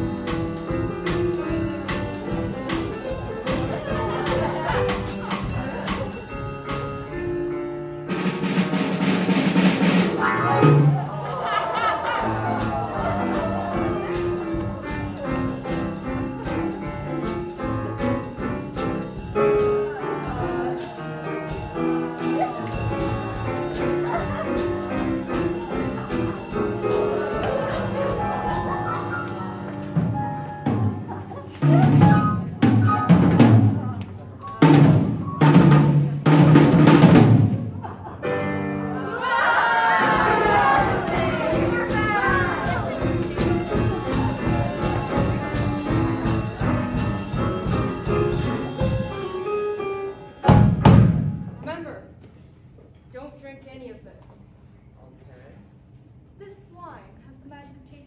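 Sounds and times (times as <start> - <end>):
drum kit beat: 0.0 - 51.7
live band music: 0.0 - 51.8.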